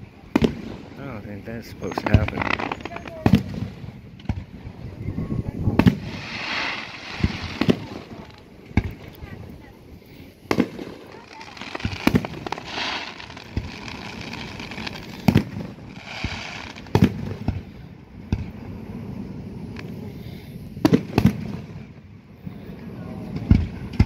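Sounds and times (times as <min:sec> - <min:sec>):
firework stars crackling: 0:00.0 - 0:24.0
firework shells booming: 0:01.6 - 0:09.2, 0:10.4 - 0:18.6.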